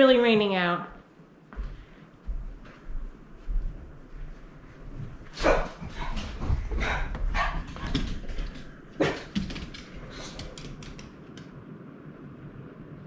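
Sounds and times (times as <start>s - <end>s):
heavy rain on roof: 9.2s - 11.4s.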